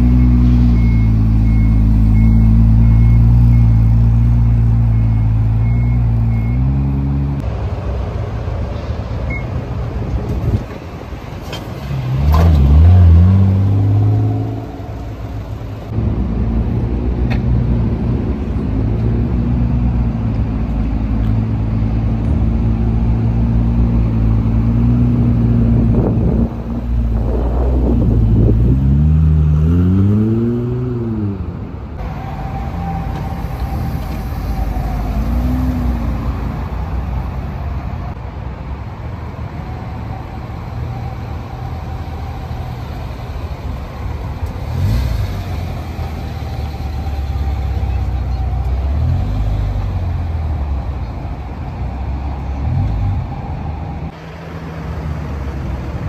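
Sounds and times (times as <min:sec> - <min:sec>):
car engines running: 0:00.0 - 0:56.0
engine revving: 0:12.0 - 0:16.0, 0:22.3 - 0:33.3, 0:44.6 - 0:48.2.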